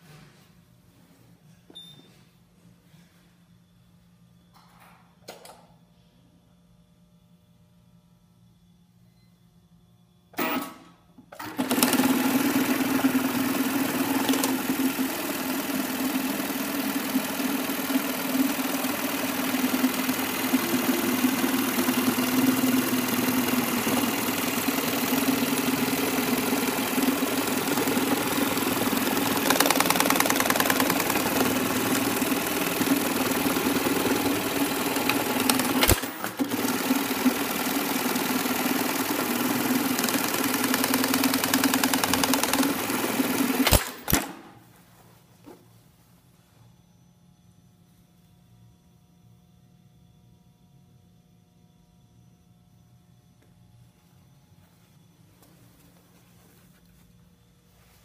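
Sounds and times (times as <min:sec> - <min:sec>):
sewing machine running: 0:11.4 - 0:44.5.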